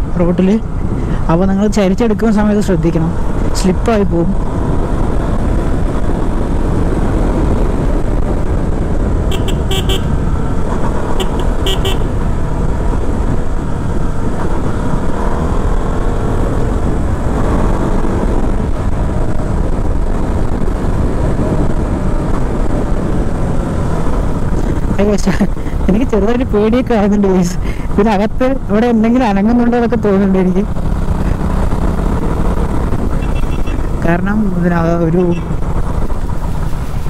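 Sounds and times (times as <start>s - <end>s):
wind rush on microphone: 0.0s - 37.0s
motorcycle engine running: 3.1s - 26.9s, 29.9s - 37.0s
horn short toots: 9.3s - 10.1s, 11.2s - 12.1s.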